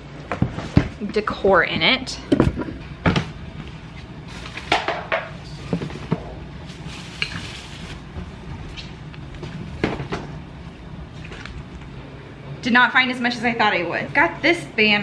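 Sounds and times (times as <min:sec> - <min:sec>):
crumpled paper rustling: 0:06.6 - 0:08.1.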